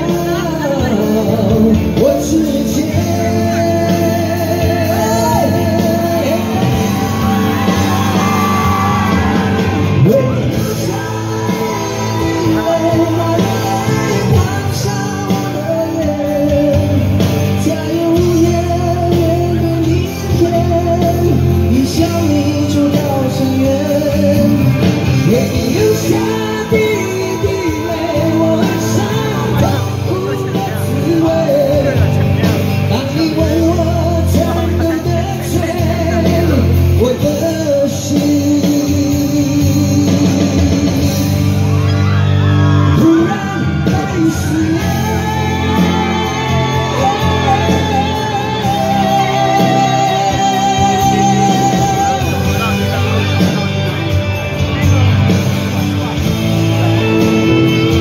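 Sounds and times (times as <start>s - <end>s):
live rock band playing: 0.0s - 58.0s
man singing: 0.0s - 58.0s
steady bass: 0.0s - 58.0s.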